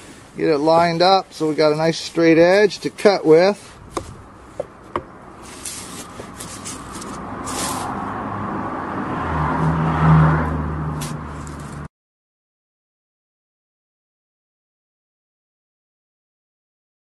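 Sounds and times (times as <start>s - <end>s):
vehicle road noise rushing past: 3.6s - 11.9s.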